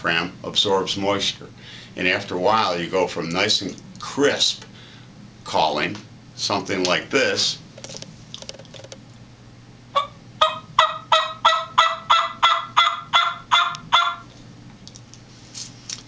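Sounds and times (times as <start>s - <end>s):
turkey call yelps: 10.0s - 14.3s.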